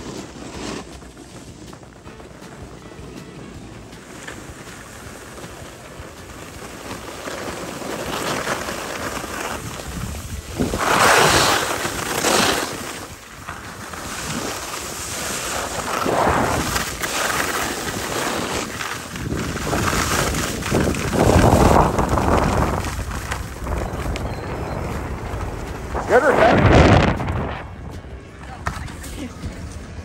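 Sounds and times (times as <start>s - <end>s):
wind rushing over microphone: 9.4s - 30.0s.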